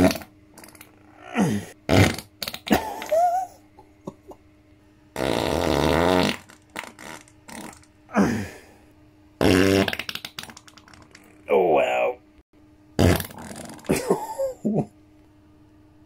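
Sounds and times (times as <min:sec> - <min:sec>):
man farting: 0:00.0 - 0:03.3, 0:05.2 - 0:08.6, 0:09.4 - 0:11.6, 0:13.0 - 0:14.9.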